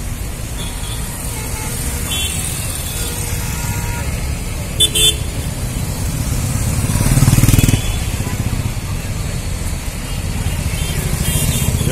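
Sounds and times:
traffic engines rumbling: 0.0 - 11.9
vehicle horn toots: 4.8 - 5.3.

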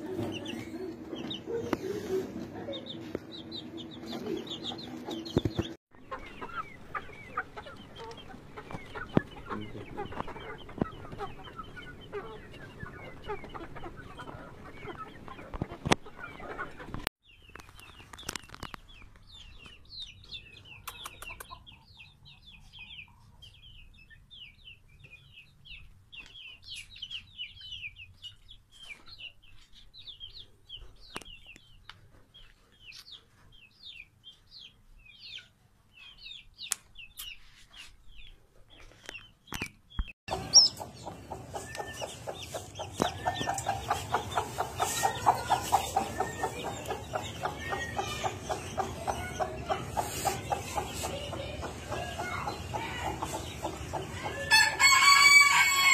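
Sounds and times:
hen clucking: 0.0 - 17.1, 40.3 - 55.9
chicks peeping: 0.0 - 55.9
rapid high-pitched chirping: 40.3 - 54.0.

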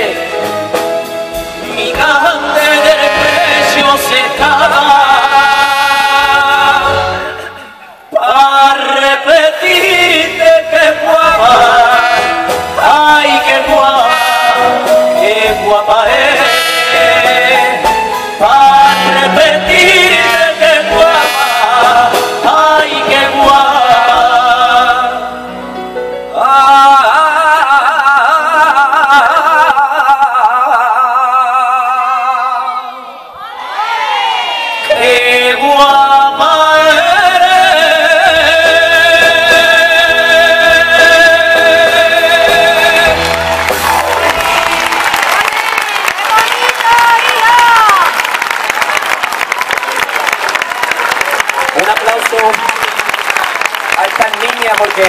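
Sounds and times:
band playing: 0.0 - 29.9, 33.5 - 55.0
man singing with vibrato: 0.0 - 33.4, 34.7 - 45.1.

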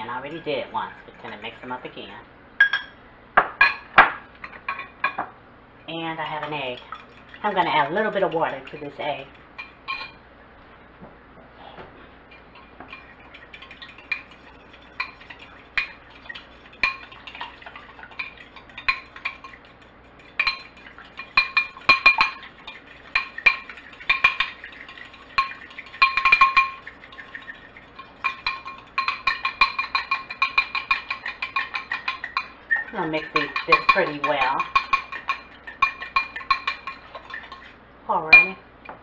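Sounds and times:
fork whisking egg in glass bowl: 0.3 - 1.7, 6.0 - 10.2, 12.3 - 37.8.

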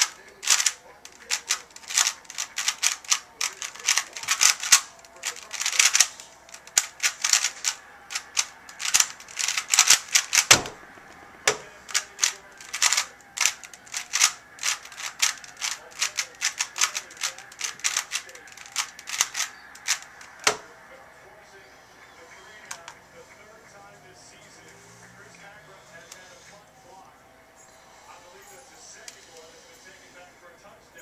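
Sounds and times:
plastic cube clacking: 0.0 - 10.8, 11.5 - 20.6.

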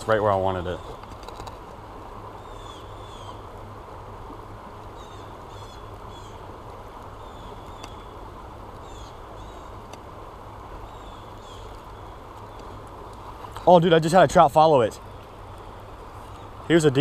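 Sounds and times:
bird chirping: 2.3 - 3.5, 4.9 - 6.5, 7.1 - 9.8, 10.7 - 12.9
faint sharp clicks: 7.0 - 8.0, 9.8 - 10.1.

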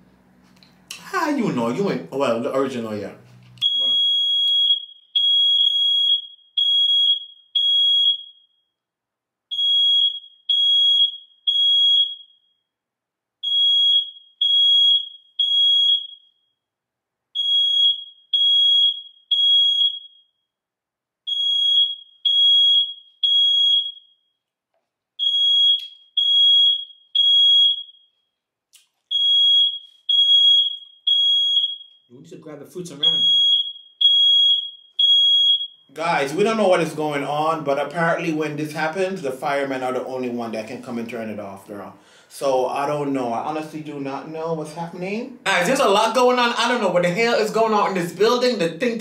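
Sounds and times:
fire alarm beeping: 3.6 - 8.8, 9.5 - 12.7, 13.4 - 16.6, 17.3 - 20.5, 21.2 - 24.4, 25.2 - 28.3, 29.1 - 32.2, 33.0 - 35.9.

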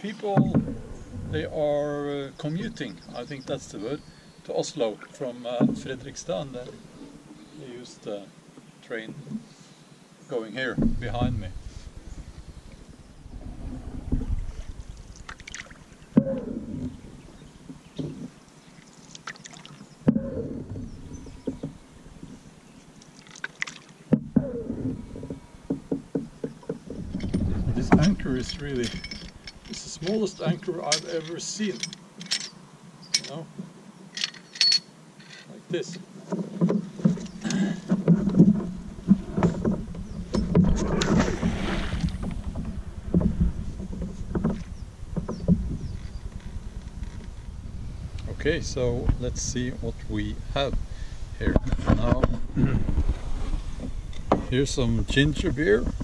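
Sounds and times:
knocks against canoe hull: 0.3 - 0.9, 36.3 - 45.8, 53.8 - 54.6
swirling water: 11.0 - 17.8, 18.6 - 30.4, 37.9 - 45.8
paddle splashing in water: 12.5 - 17.0, 18.1 - 21.7, 23.0 - 28.0, 36.3 - 45.7.

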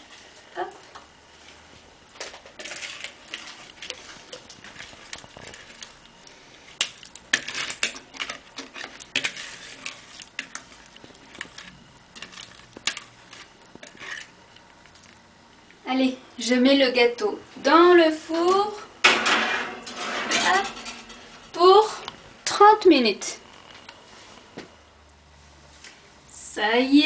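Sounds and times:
whisk scraping plastic bowl: 7.3 - 14.3.

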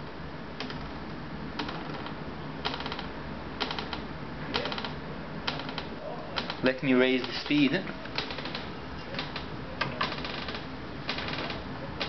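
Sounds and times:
door hinge creaking: 4.6 - 11.7.

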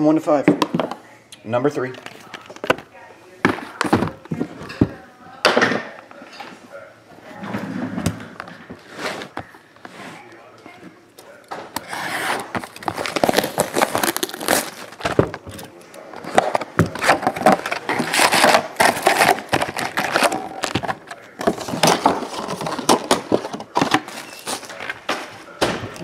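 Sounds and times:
crinkling of foil wrappers: 8.4 - 26.0.

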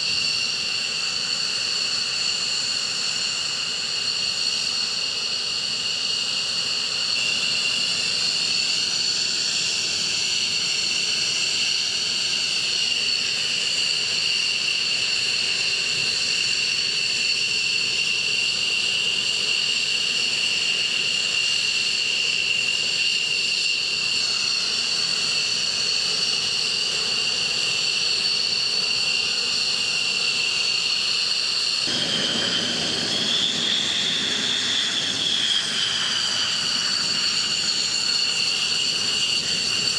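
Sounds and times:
jet engine rushing hiss: 0.0 - 39.9
jet engine whine: 0.0 - 39.9.

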